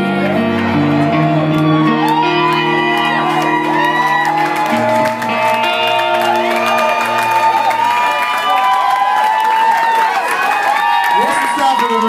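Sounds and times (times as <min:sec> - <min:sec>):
live rock band playing: 0:00.0 - 0:09.1
crowd whooping and shouting: 0:00.0 - 0:12.0.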